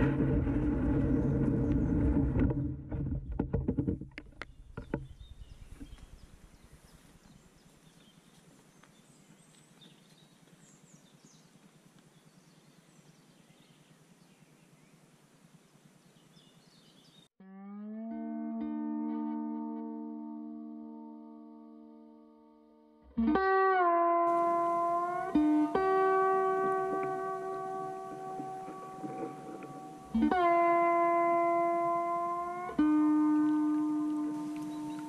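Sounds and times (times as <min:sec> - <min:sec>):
loud low rumbling: 0:00.0 - 0:03.3
knocks and clicks: 0:01.7 - 0:05.2
distant bird chirps: 0:04.2 - 0:17.3, 0:24.3 - 0:35.0.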